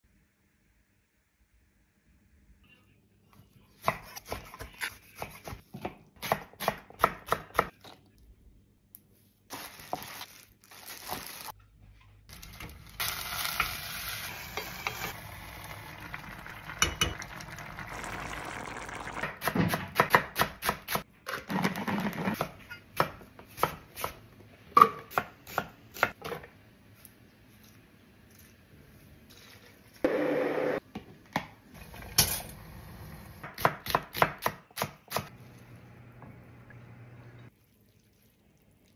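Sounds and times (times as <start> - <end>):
pot simmering: 12.6 - 19.4
water pouring into a pot: 13.1 - 19.2, 37.5 - 38.9.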